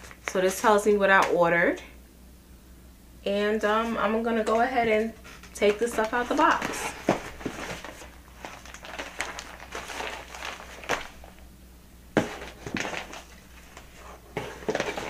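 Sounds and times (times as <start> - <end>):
plastic packaging rustling: 0.0 - 0.8, 5.1 - 11.5, 12.2 - 15.0.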